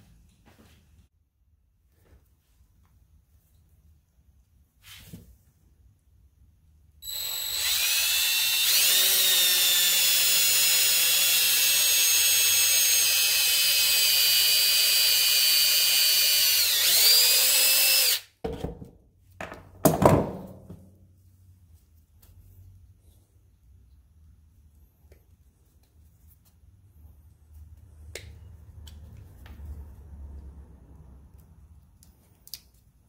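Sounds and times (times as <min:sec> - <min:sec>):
cordless drill whining: 0:07.0 - 0:18.3.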